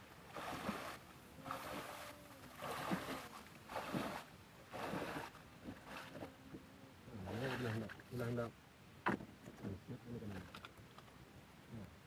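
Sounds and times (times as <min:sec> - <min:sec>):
person wading through water: 0:00.0 - 0:08.2.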